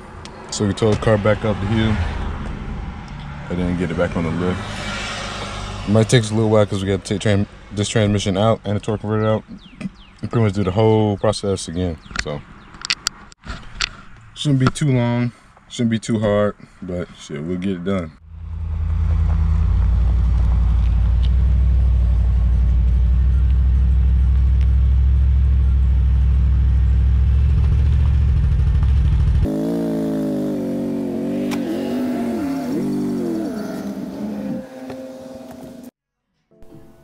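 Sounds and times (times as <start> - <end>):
car engine rumbling and revving: 0.0 - 10.4, 18.2 - 35.9.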